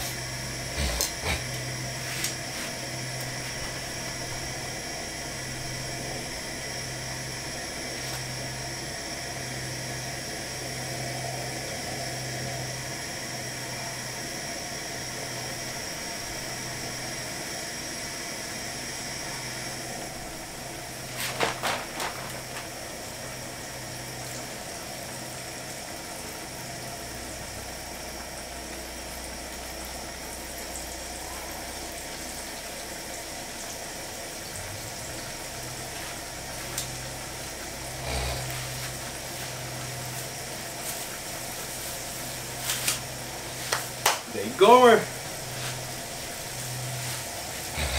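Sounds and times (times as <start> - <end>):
gas burner hissing: 0.0 - 47.9.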